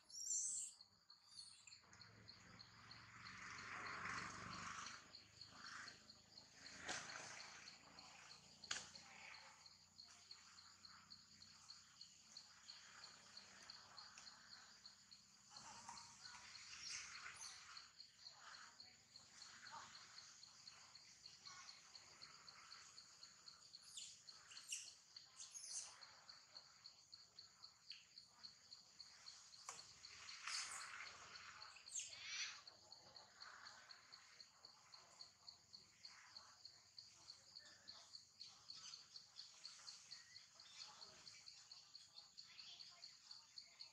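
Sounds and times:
insect trilling: 0.0s - 27.6s, 28.4s - 43.9s.

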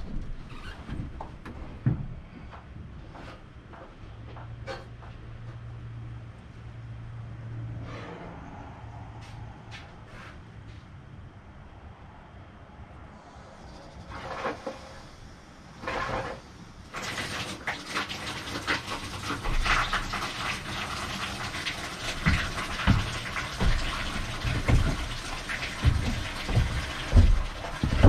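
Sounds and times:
hose water splashing: 14.0s - 28.0s
low thumps: 22.2s - 28.0s.

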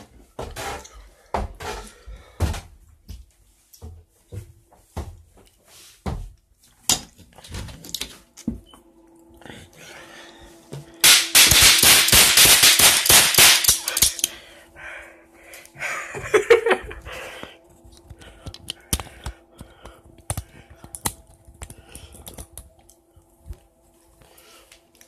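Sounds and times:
cap guns firing: 11.0s - 14.3s.

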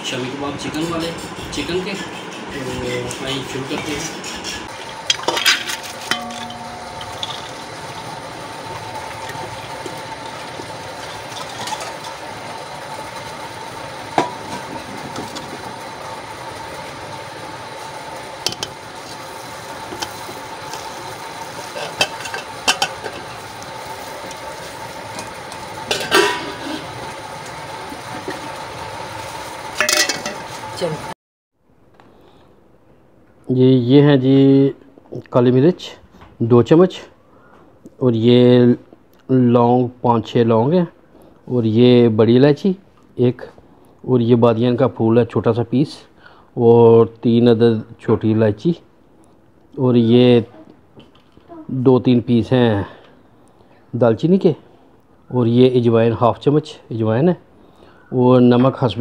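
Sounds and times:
metal bowl clinking against pot: 5.1s - 7.7s, 21.8s - 23.3s, 29.8s - 30.4s
lentils rattling into metal pot: 5.1s - 7.8s, 29.8s - 30.5s.

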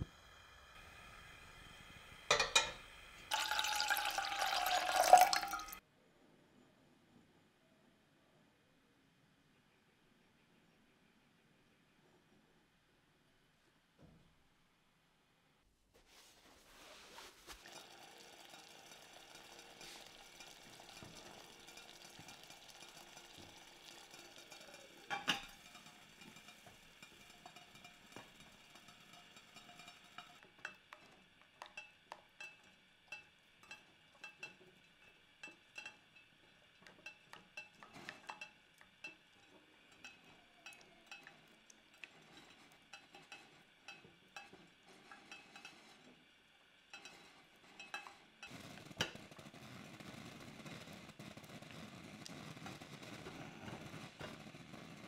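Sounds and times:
steady hiss: 0.0s - 3.4s, 16.0s - 31.4s
spatula scraping glass pot: 16.8s - 46.2s, 46.9s - 51.2s.

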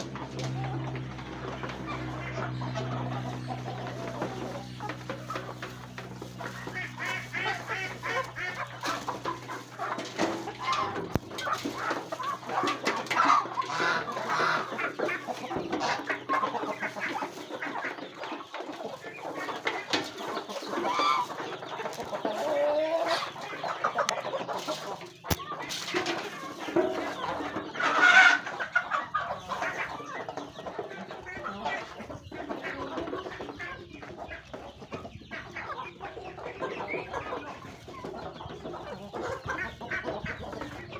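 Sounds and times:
chickens clucking: 0.0s - 40.9s
beaks pecking: 1.3s - 27.7s
loud chicken call: 6.4s - 16.6s, 20.6s - 21.4s.

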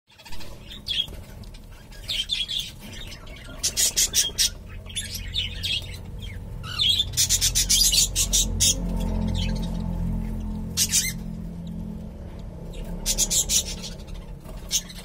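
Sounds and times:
cockatiels chirping: 0.2s - 9.7s, 10.3s - 11.3s, 12.7s - 15.0s.

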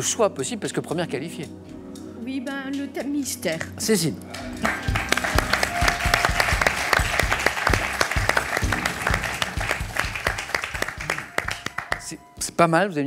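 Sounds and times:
audience applauding: 4.3s - 12.2s
show music: 4.3s - 12.4s.

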